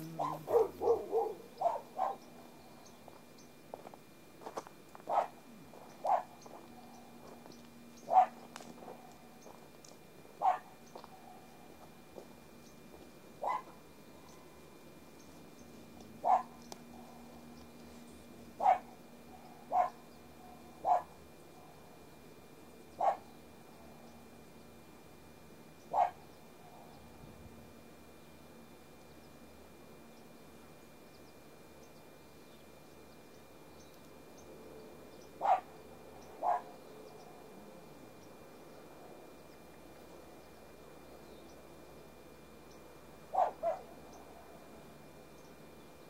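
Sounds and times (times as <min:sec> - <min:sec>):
short clipped animal calls: 0:00.0 - 0:01.0
dog barking: 0:00.2 - 0:02.2, 0:05.1 - 0:05.4, 0:06.0 - 0:06.9, 0:08.1 - 0:09.2, 0:10.4 - 0:11.5, 0:13.4 - 0:13.8, 0:16.2 - 0:17.2, 0:18.6 - 0:21.8, 0:23.0 - 0:23.3, 0:25.9 - 0:26.9, 0:35.4 - 0:35.7, 0:36.4 - 0:36.8, 0:43.3 - 0:43.9.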